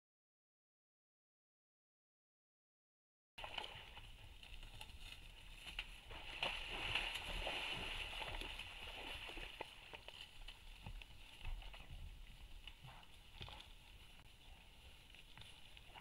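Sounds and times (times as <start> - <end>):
hooves splashing in mud: 3.4 - 16.0.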